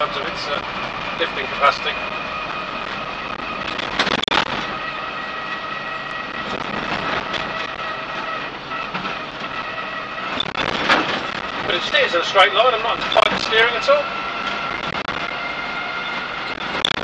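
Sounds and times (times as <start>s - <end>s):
truck engine whine from inside cab: 0.0s - 17.0s
clatter: 2.8s - 4.8s, 6.4s - 11.7s, 16.0s - 17.0s.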